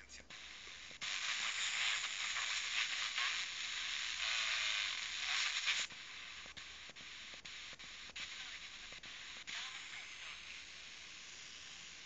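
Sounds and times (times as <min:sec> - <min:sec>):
radio static hiss: 0:00.0 - 0:12.0
faint ticks: 0:05.2 - 0:09.4.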